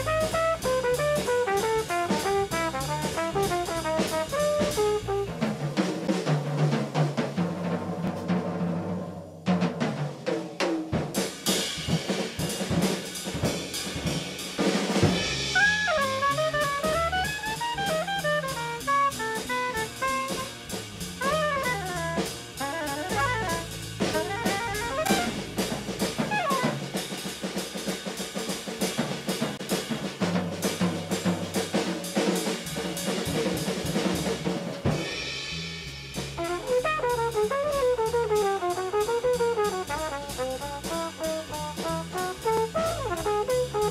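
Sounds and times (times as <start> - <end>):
jazz drum kit and percussion: 0.0 - 43.9
saxophone line: 15.6 - 20.5, 21.2 - 26.9, 41.1 - 43.9.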